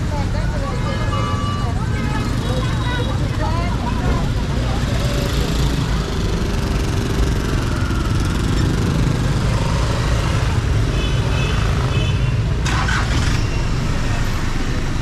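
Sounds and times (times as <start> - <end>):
street traffic engines rumbling: 0.0 - 15.0.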